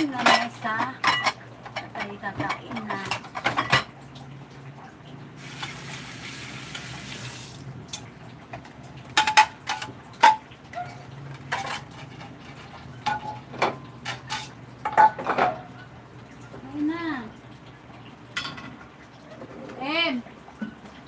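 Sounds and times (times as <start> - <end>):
plates and bowls clinking: 0.0 - 4.0, 9.1 - 16.6, 18.3 - 18.8
kitchen faucet running: 0.0 - 8.2.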